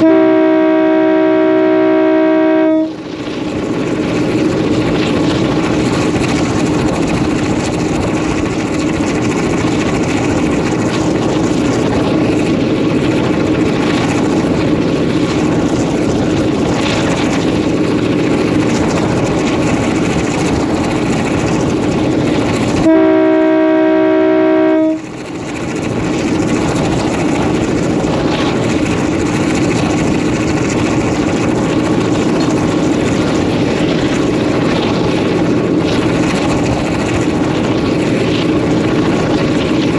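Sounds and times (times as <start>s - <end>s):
locomotive air horn blast: 0.0s - 3.0s, 22.8s - 25.1s
diesel locomotive engine running: 0.0s - 39.9s.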